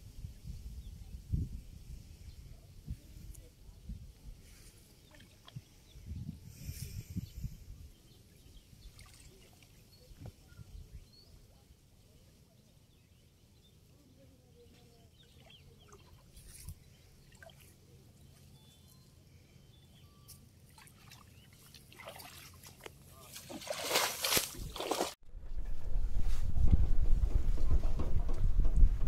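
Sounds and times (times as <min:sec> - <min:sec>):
faint bird chirps: 0:04.7 - 0:21.8
water sloshing and splashing: 0:15.3 - 0:17.8, 0:20.7 - 0:25.2.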